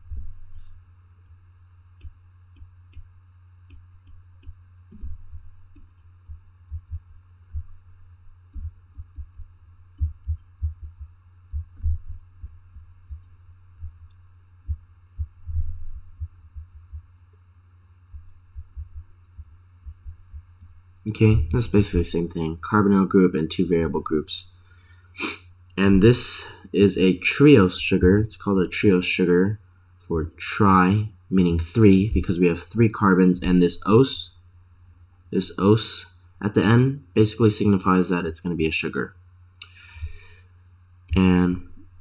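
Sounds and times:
low electrical hum: 0:00.0 - 0:42.0
stylus tapping on drawing tablet: 0:08.5 - 0:13.2.

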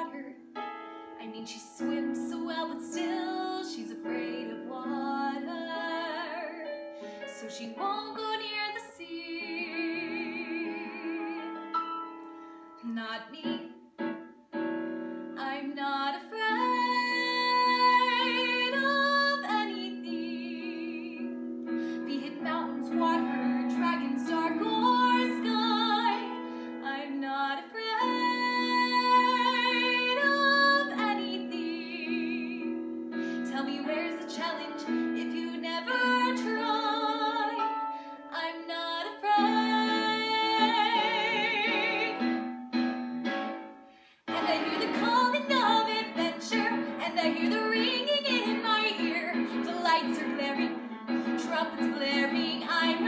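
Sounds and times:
woman singing with vibrato: 0:01.2 - 0:11.8, 0:12.8 - 0:13.8, 0:15.4 - 0:21.4, 0:22.0 - 0:32.8, 0:33.4 - 0:42.4, 0:44.3 - 0:53.0
instrumental accompaniment: 0:09.4 - 0:15.4, 0:28.1 - 0:53.0.

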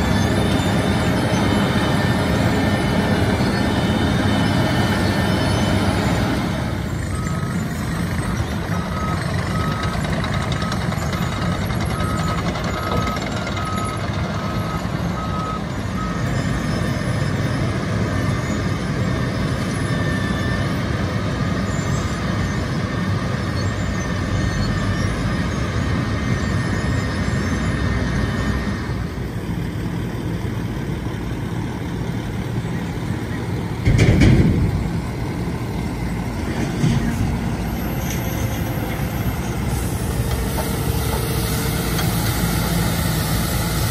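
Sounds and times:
reversing alarm beeping: 0:00.0 - 0:21.1, 0:21.9 - 0:29.2.

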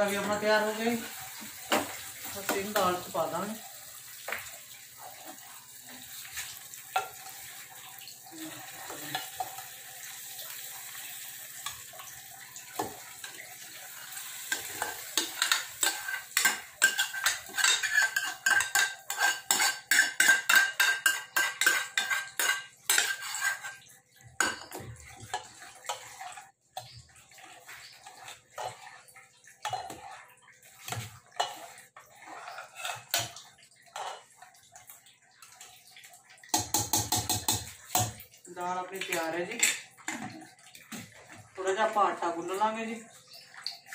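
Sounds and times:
oil sizzling in a pan: 0:00.0 - 0:43.9
metal spoon scraping a pan: 0:12.7 - 0:29.0, 0:29.6 - 0:34.3
spoon clinking in a pot: 0:14.5 - 0:23.8.

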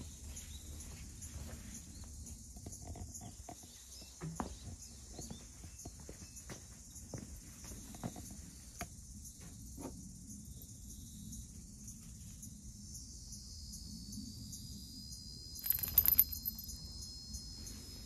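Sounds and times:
cat collar bell jingling: 0:15.6 - 0:16.8
high-pitched insect chirring: 0:15.6 - 0:17.5.

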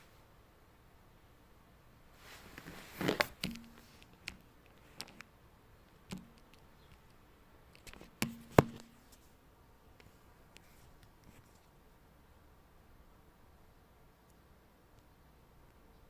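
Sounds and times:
taps and clicks of phone handling: 0:03.2 - 0:04.4, 0:06.1 - 0:06.6, 0:07.8 - 0:09.0.

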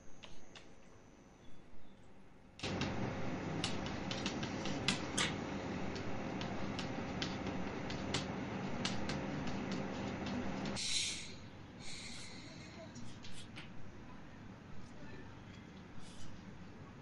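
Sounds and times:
chalk tapping on blackboard: 0:02.6 - 0:10.8
steady hum: 0:02.6 - 0:13.5.

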